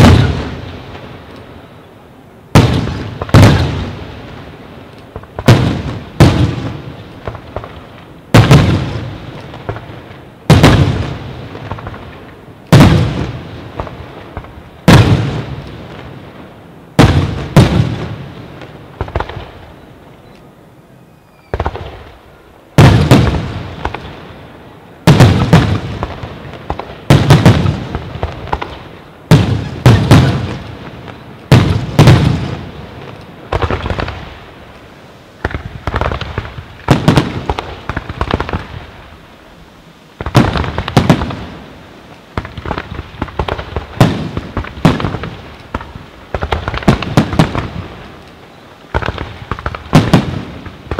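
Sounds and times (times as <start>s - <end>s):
firework shells booming: 0.0s - 0.7s, 2.5s - 4.1s, 5.1s - 16.0s, 22.8s - 24.2s, 25.0s - 34.4s, 35.4s - 38.9s, 42.3s - 48.0s, 48.9s - 50.9s
firework pops and crackles: 0.0s - 1.5s, 2.5s - 16.2s, 17.0s - 19.7s, 21.4s - 22.2s, 22.8s - 24.2s, 25.0s - 39.2s, 40.2s - 50.9s.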